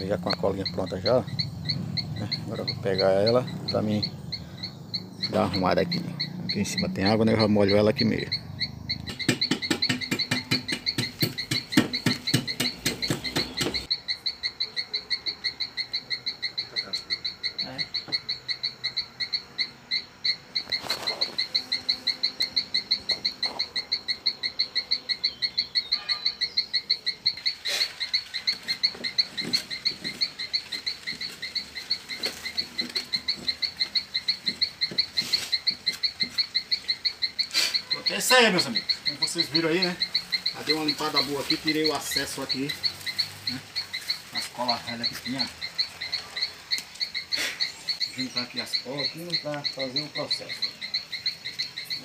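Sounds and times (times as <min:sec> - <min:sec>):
frog chirping: 0:00.0 - 0:52.0
low coarse pulsing: 0:00.6 - 0:07.0
scraping knocks: 0:09.1 - 0:13.9.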